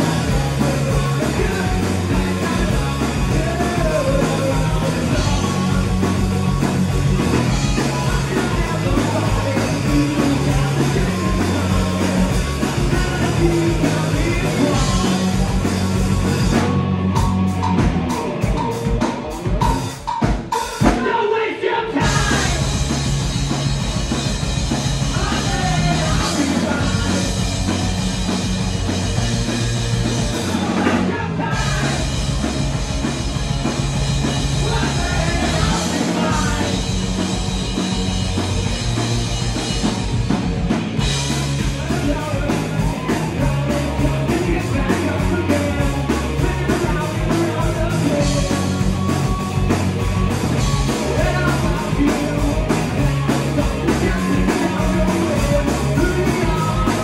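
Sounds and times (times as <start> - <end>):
person singing: 0.0 - 19.2, 20.8 - 22.9, 25.1 - 27.4, 30.4 - 32.5, 34.5 - 37.0, 41.6 - 49.7, 50.8 - 57.0
electric guitar: 0.0 - 21.0, 22.0 - 57.0
bass guitar: 0.0 - 21.2, 21.9 - 57.0
drum kit: 0.0 - 57.0.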